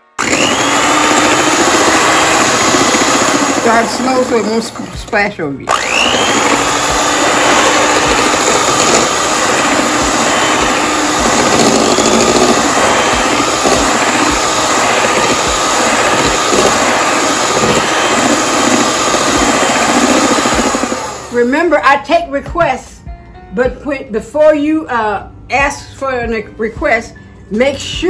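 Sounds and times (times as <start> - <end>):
electric hand mixer whirring: 0.0 - 21.5.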